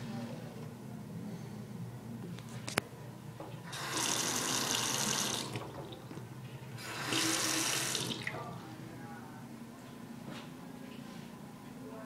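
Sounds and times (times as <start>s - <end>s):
tap water running into sink: 3.7s - 6.2s, 6.8s - 8.4s.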